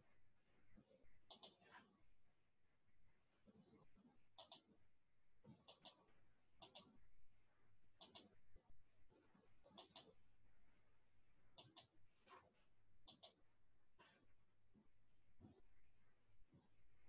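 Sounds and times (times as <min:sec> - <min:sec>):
faint computer mouse clicks: 0:01.3 - 0:01.8, 0:04.4 - 0:04.8, 0:05.6 - 0:06.0, 0:06.6 - 0:07.0, 0:08.0 - 0:08.4, 0:09.7 - 0:10.2, 0:11.6 - 0:12.0, 0:13.0 - 0:13.4.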